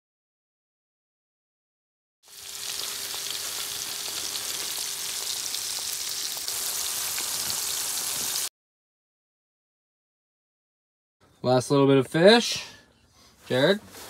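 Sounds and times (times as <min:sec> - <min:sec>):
fish deep-frying in oil: 0:02.2 - 0:08.5.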